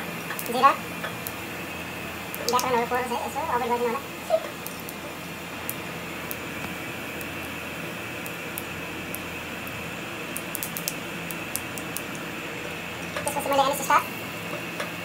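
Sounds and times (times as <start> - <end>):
spices sizzling in hot oil: 0.0 - 15.0
sharp pops and crackles: 0.1 - 1.6, 2.2 - 2.8, 4.4 - 13.8.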